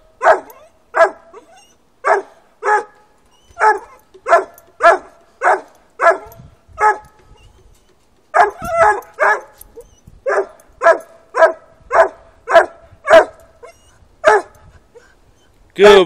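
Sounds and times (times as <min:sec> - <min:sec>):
dog barking: 0:00.2 - 0:03.0, 0:03.6 - 0:07.2, 0:08.3 - 0:09.6, 0:10.2 - 0:13.4, 0:14.2 - 0:14.6.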